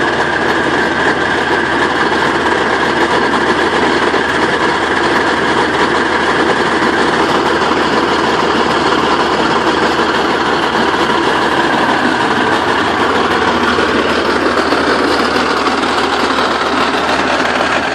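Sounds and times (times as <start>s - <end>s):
tank diesel engine idling: 0.0s - 17.9s.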